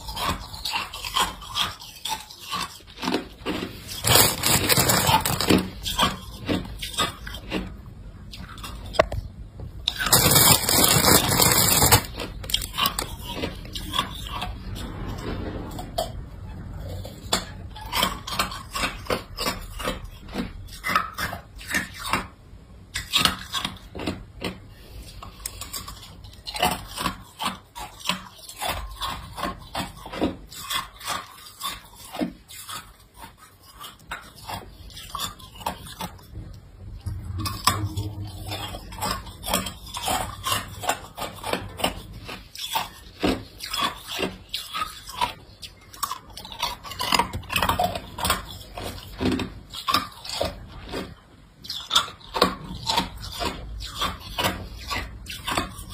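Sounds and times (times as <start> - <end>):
ice cubes crunching: 0.2 - 7.2, 9.9 - 13.5.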